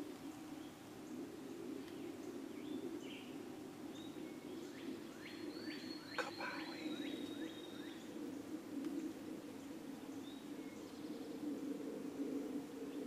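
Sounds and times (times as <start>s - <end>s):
songbird singing falling notes: 3.9s - 8.1s.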